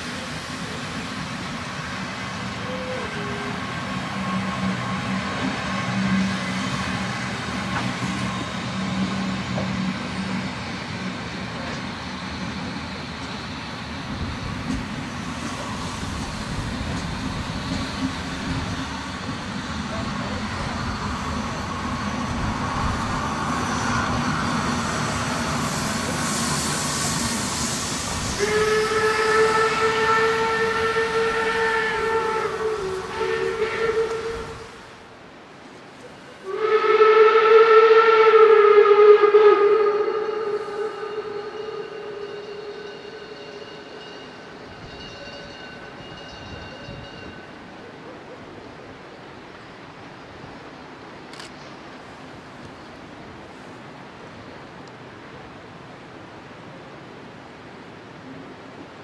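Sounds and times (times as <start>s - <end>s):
hiss of steam: 0.0s - 44.9s
steam train rolling past: 0.0s - 59.0s
steam locomotive whistle blast: 2.5s - 7.2s, 25.6s - 34.9s, 36.4s - 44.1s.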